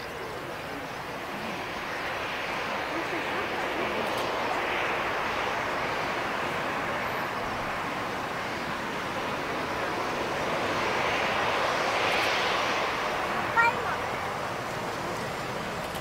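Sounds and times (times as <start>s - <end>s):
jet engines hissing: 0.0s - 16.0s.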